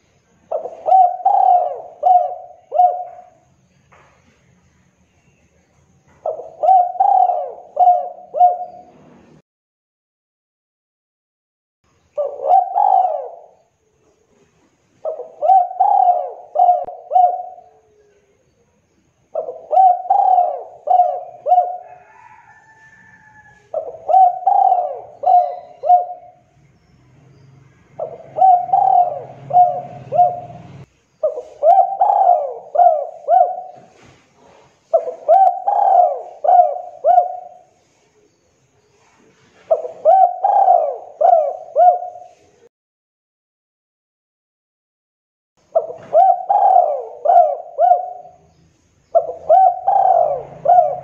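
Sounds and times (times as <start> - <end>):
dove cooing: 0.5 - 3.5, 6.2 - 9.0, 12.1 - 13.6, 15.0 - 18.3, 19.3 - 26.5, 28.0 - 37.8, 39.5 - 42.7, 45.7 - 48.5, 49.1 - 51.0.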